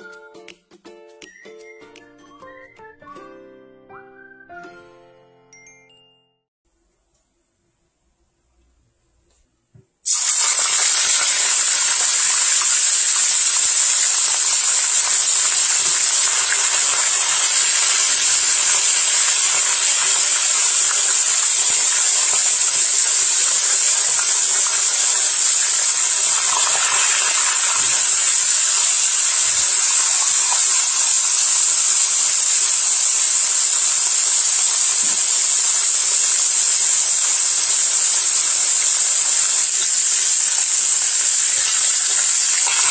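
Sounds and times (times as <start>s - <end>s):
fish frying in hot oil: 10.0s - 42.9s.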